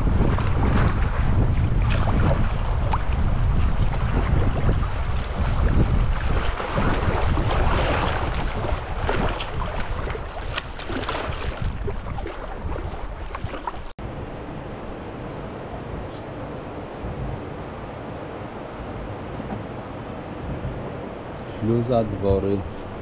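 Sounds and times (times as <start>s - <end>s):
wind buffeting microphone: 0.0s - 23.0s
paddle splashing water: 0.1s - 14.0s.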